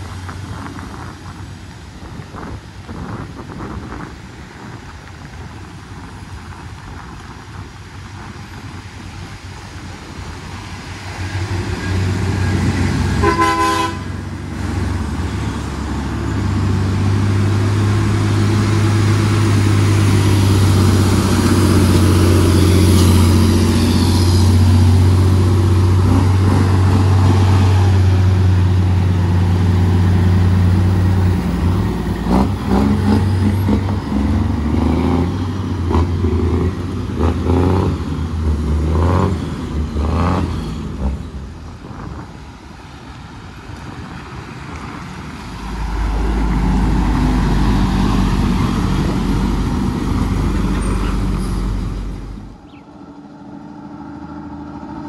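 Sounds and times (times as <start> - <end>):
truck diesel engine droning: 0.0 - 55.0
truck horn toot: 13.1 - 14.2.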